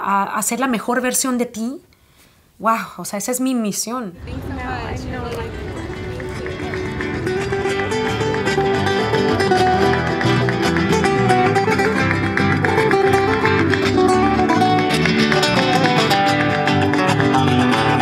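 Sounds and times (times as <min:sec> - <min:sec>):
flamenco guitar music: 0:04.2 - 0:18.0.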